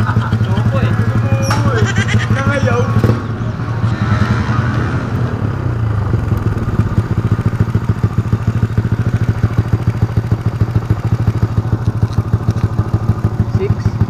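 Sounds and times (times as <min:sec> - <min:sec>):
motorcycle engine idling: 0:00.0 - 0:14.0.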